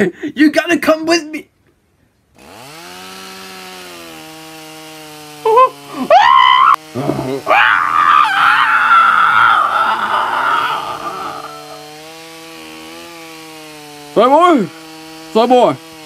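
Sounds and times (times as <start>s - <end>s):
chainsaw running: 2.3s - 16.0s
person screaming: 5.9s - 11.8s.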